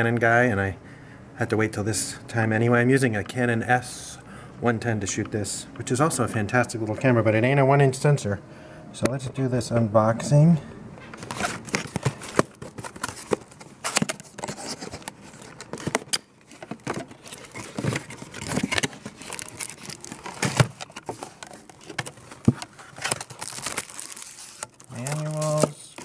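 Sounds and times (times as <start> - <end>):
cardboard box being opened: 11.2 - 26.0.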